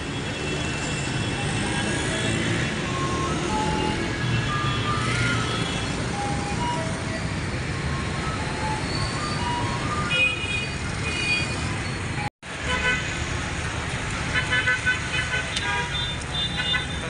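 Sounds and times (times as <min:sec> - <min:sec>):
city street traffic: 0:00.0 - 0:17.0.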